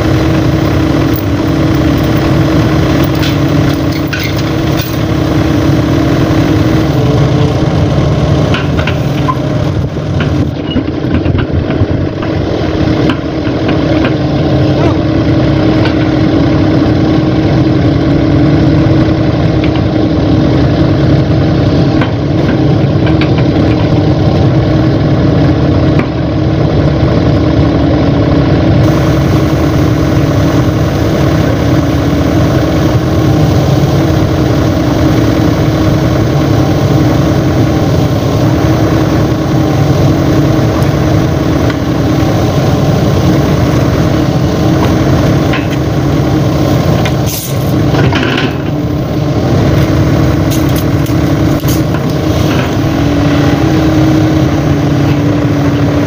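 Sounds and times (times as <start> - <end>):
excavator diesel engine droning: 0.0 - 56.0.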